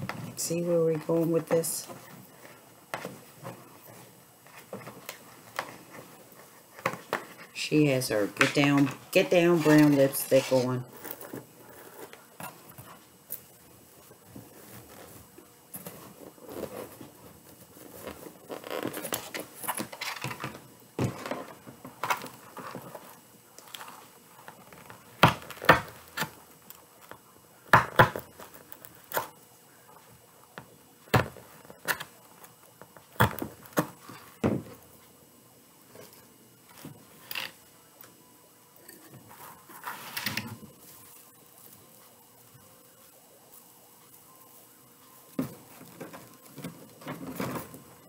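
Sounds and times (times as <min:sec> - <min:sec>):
stiff fabric rustling and crinkling: 0:09.5 - 0:20.4.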